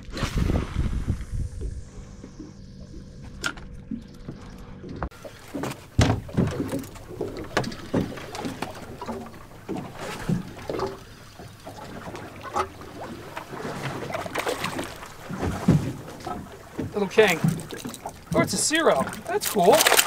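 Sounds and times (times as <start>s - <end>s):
water slapping against boat hull: 0.0s - 20.0s
knocks on boat: 5.0s - 11.0s, 15.3s - 18.6s.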